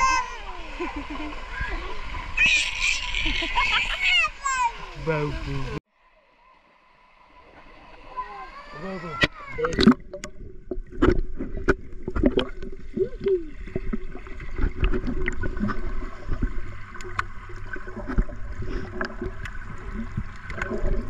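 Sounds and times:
water bubbling: 7.6 - 21.0
small underwater clicks and pops: 9.2 - 12.8, 14.6 - 20.8.

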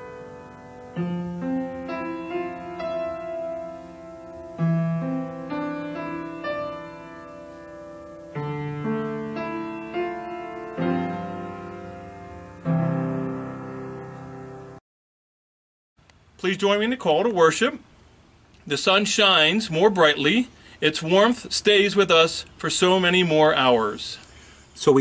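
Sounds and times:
piano playing slow chords: 0.0 - 14.8.

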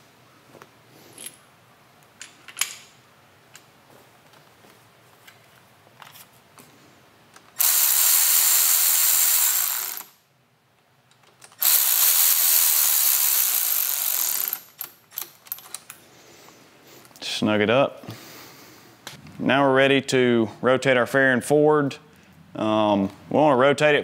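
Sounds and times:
cordless electric ratchet running: 7.6 - 10.2, 11.6 - 15.3.

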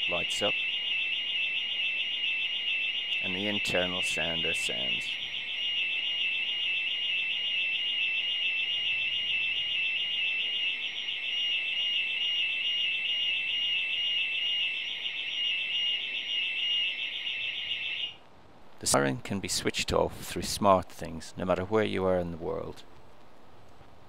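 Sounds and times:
warbling alarm siren: 0.0 - 18.2.

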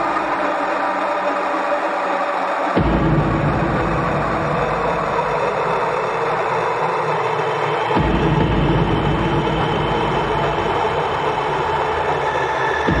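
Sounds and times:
deep bass layer: 2.8 - 7.2, 7.8 - 13.0.

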